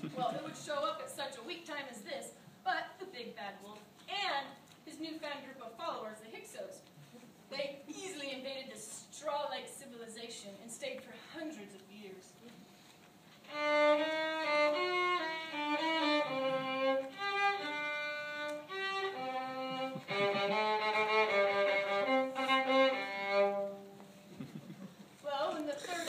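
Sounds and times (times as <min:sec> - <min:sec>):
solo bowed violin melody: 0:13.4 - 0:24.0.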